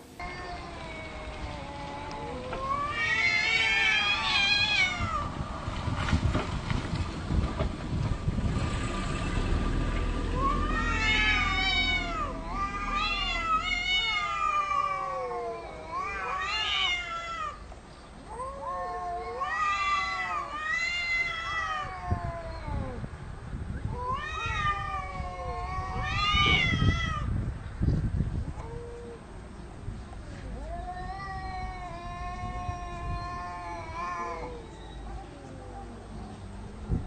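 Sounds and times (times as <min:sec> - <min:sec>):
cats yowling: 0:00.2 - 0:05.4, 0:10.2 - 0:17.6, 0:18.2 - 0:23.1, 0:23.9 - 0:27.3, 0:28.5 - 0:29.2, 0:30.3 - 0:36.2.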